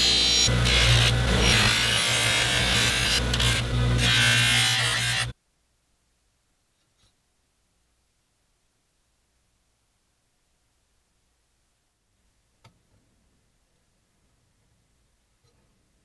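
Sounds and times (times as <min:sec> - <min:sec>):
bench buffer motor humming: 0:00.0 - 0:05.3
blade grinding on abrasive wheel: 0:00.0 - 0:05.3.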